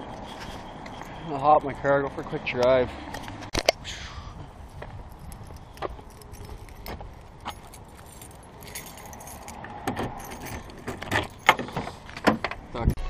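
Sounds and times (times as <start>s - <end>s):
car keys jangling: 5.0s - 12.6s.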